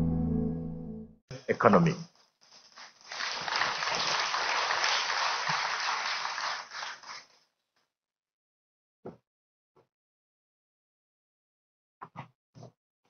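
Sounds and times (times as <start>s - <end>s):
audience applauding: 3.1s - 7.2s.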